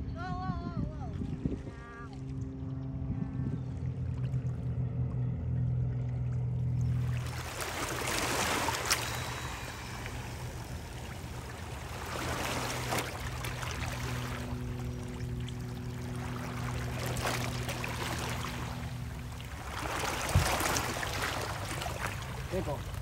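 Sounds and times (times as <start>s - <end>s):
water lapping against rocks: 6.9s - 23.0s.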